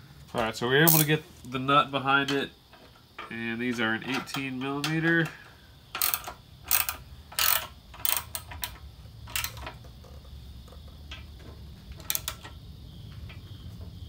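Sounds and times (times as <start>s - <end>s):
ratcheting wrench clicking: 5.9s - 9.8s, 12.0s - 12.6s.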